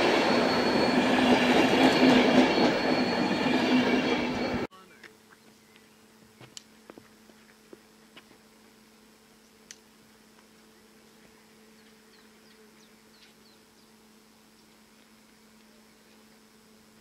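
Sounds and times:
faint steady hum: 4.7 - 17.0.

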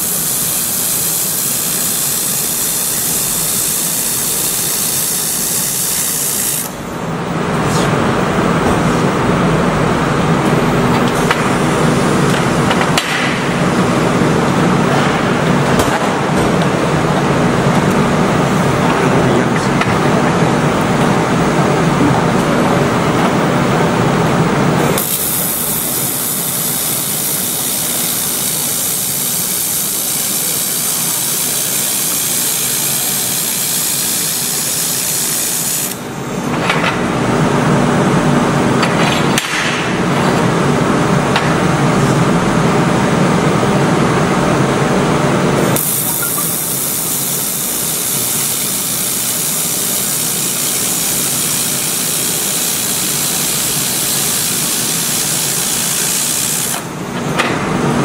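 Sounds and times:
laser welder hissing crackle: 0.0 - 6.8, 24.9 - 36.0, 45.7 - 56.9.

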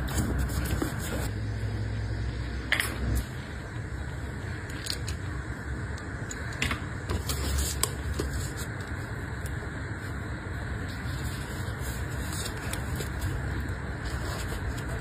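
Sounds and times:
paper and cord rubbing: 0.0 - 1.3, 10.9 - 15.0.

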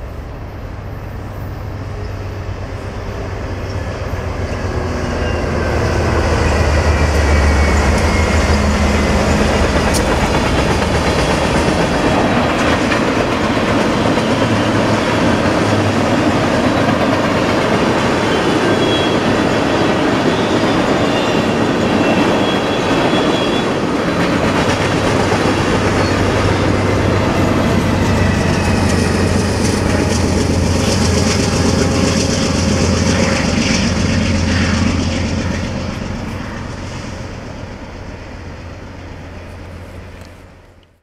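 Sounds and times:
diesel locomotive engine humming: 0.0 - 41.0
train wheels clacking over rail joints: 6.8 - 20.1, 20.8 - 34.9.

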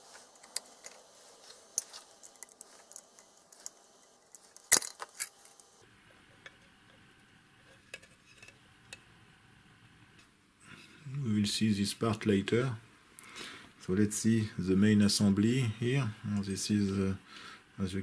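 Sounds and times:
screwdriver and metal parts clinking: 0.0 - 5.8.

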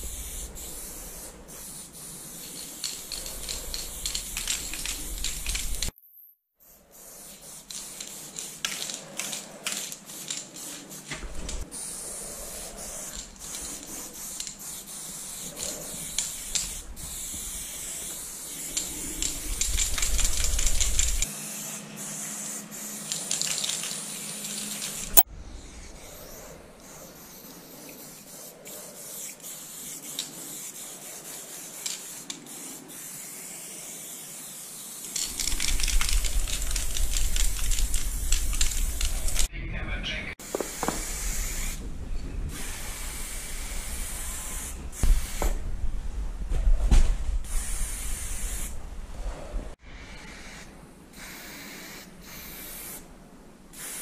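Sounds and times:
spray paint can hissing: 0.0 - 6.0, 6.6 - 39.5, 40.4 - 41.8, 42.5 - 45.6, 47.4 - 48.8, 50.2 - 53.0, 53.7 - 54.0
small clicks: 2.4 - 6.0, 35.1 - 39.5.

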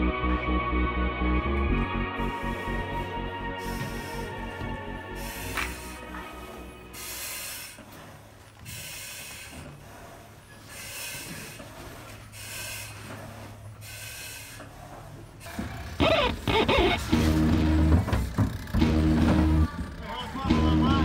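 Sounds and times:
hissing breaths through mask: 2.2 - 15.9.

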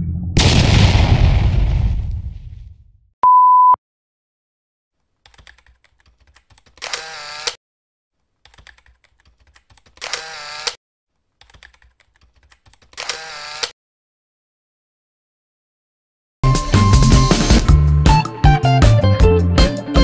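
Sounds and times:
steady beep: 3.2 - 3.8.

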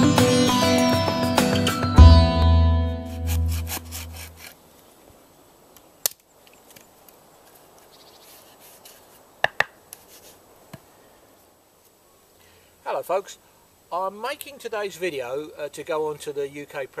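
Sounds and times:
intro music: 0.0 - 4.2.

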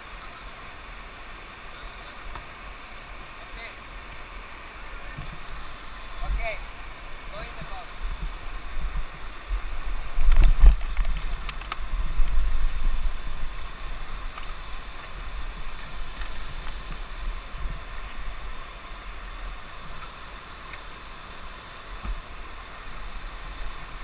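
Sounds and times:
whitewater rushing over rocks: 0.0 - 24.0
low rumble buffeting microphone: 4.8 - 20.2
sharp clicks and knocks: 10.3 - 11.8.

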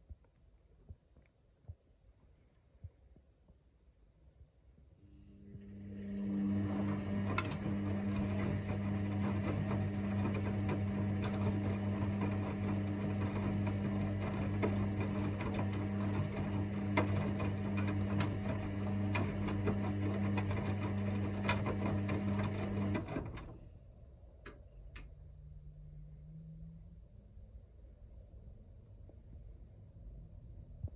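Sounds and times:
washing machine drum spinning: 5.7 - 23.6.

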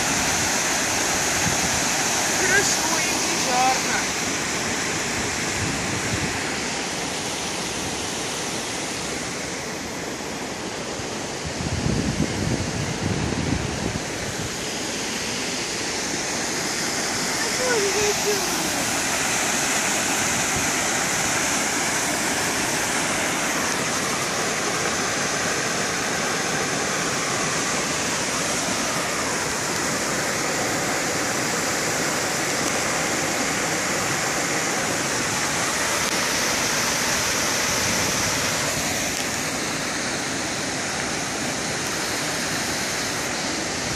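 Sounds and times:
fountain jets splashing into pond: 0.0 - 5.0, 15.8 - 43.8.

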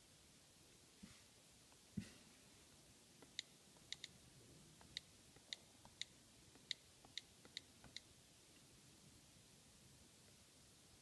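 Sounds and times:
on-screen keyboard clicks: 4.8 - 8.1.

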